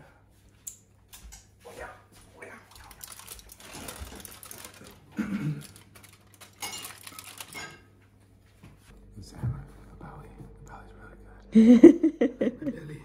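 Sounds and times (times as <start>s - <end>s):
aluminium foil crinkling: 2.7s - 7.9s.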